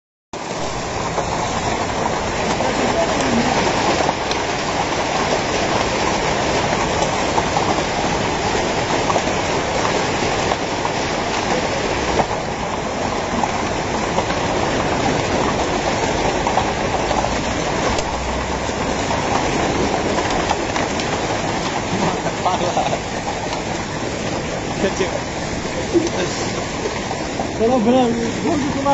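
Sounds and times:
hailstones pelting the ground: 0.4s - 28.9s.

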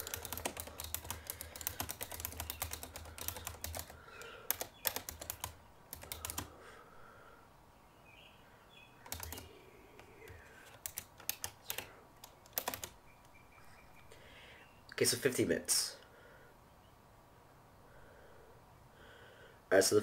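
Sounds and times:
typing on computer keyboard: 0.0s - 6.5s, 9.0s - 13.0s.

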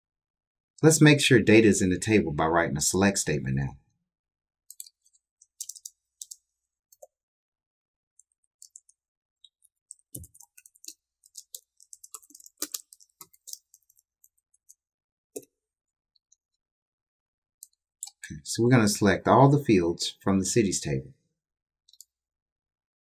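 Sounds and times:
computer keyboard typing: 4.7s - 7.1s, 8.2s - 14.8s.

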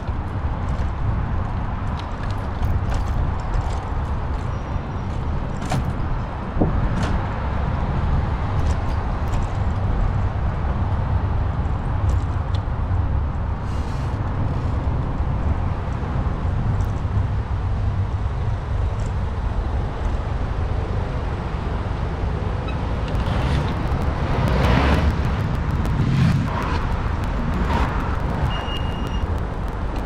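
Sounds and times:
road noise: 0.0s - 30.0s
wind on microphone: 22.9s - 30.0s.

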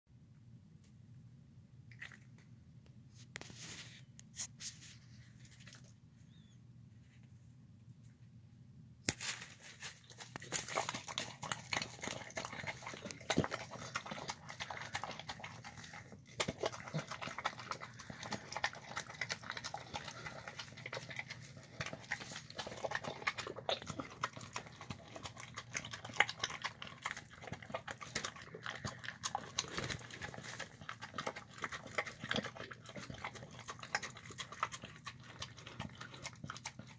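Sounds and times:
dog chewing and licking: 9.6s - 36.9s.

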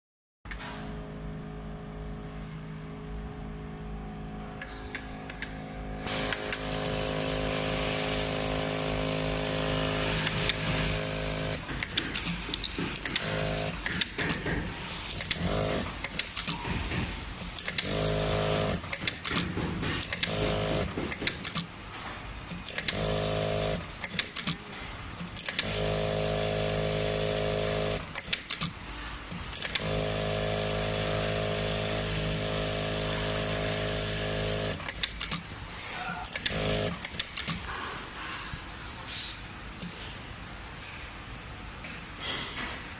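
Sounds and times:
sewing machine stitching: 6.1s - 21.7s, 22.5s - 24.6s, 25.3s - 35.4s, 36.2s - 37.7s
sharp clicks and knocks: 10.2s - 18.1s, 18.7s - 23.2s, 23.9s - 25.8s, 28.1s - 29.9s, 34.8s - 35.5s, 36.3s - 37.8s.

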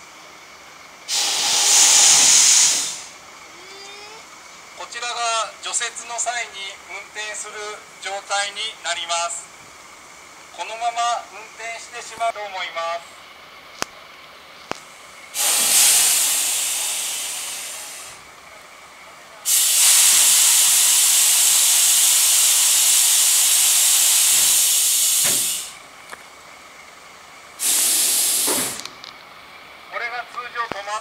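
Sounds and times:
compressed air hissing: 1.1s - 3.2s, 15.3s - 18.3s, 19.5s - 25.8s, 27.6s - 29.0s.

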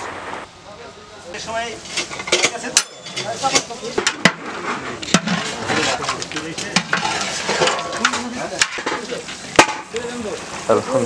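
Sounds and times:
spatula scraping in a pot: 6.8s - 8.3s
sizzle: 7.3s - 11.0s.

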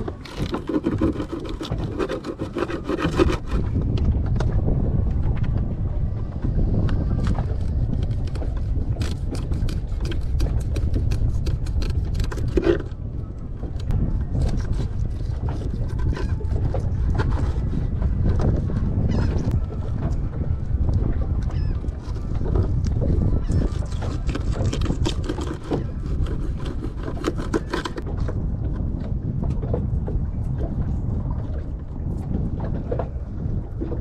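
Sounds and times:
steady low rumble: 0.0s - 27.0s
wind buffeting microphone: 0.0s - 34.0s
knife cutting through fish: 0.2s - 3.6s, 8.0s - 12.9s, 23.6s - 28.0s.

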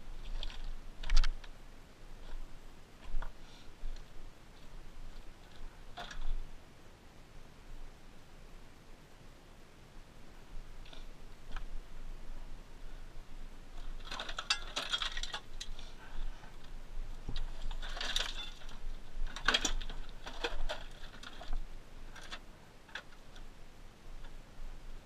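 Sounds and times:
rock and scrap metal crunching: 0.1s - 1.3s, 13.7s - 23.5s
scattered clicks: 0.3s - 1.6s.

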